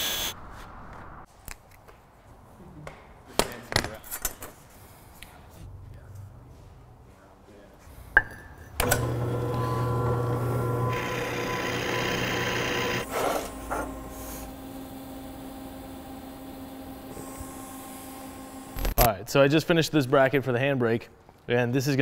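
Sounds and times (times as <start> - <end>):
drill bit grinding into metal: 8.8 - 13.5
drill press motor humming: 8.8 - 19.0.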